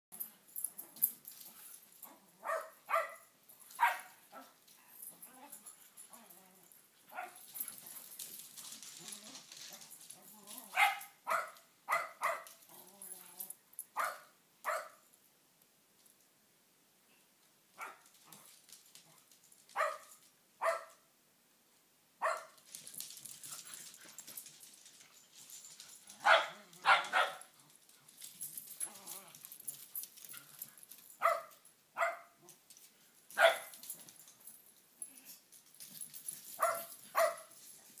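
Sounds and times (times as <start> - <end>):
dogs barking: 2.4 - 4.2, 26.2 - 27.5, 33.4 - 33.8, 36.6 - 37.5.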